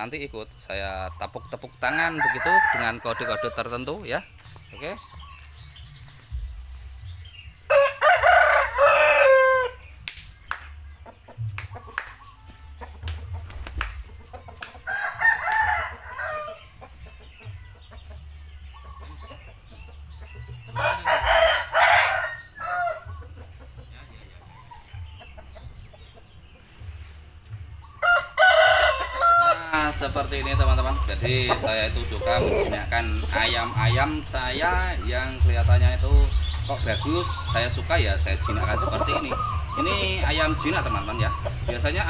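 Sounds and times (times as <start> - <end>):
rooster crowing: 1.9 - 3.6, 7.7 - 9.8, 14.9 - 16.6, 20.8 - 23.0, 28.0 - 29.7
hand claps: 10.0 - 12.4, 13.0 - 14.8.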